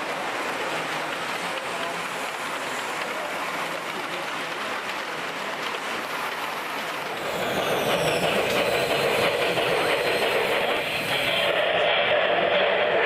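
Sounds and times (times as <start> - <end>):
model train wheels clattering: 0.0 - 13.0.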